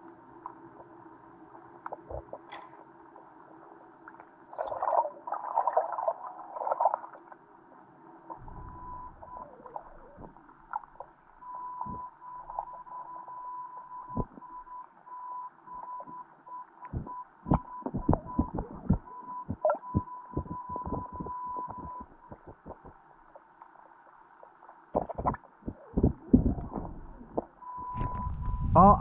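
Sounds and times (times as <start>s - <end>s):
low underwater rumble: 8.3s - 13.1s, 17.0s - 23.4s, 25.0s - 29.0s.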